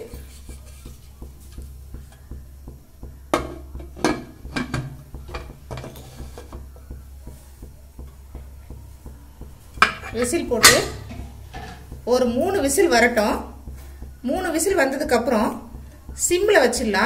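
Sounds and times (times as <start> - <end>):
metal lid knocking and clicking: 0.0 - 7.4
low hum: 6.6 - 17.0.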